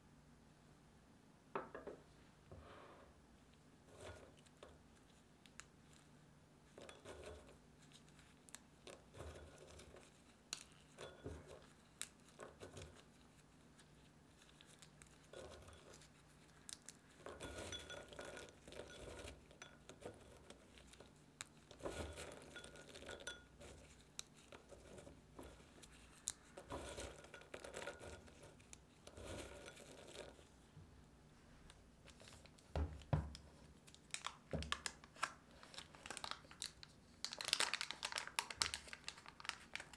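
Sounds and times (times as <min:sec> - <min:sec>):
nuts crackling: 0:33.7 - 0:39.9
foil wrapping crinkling: 0:33.9 - 0:39.9.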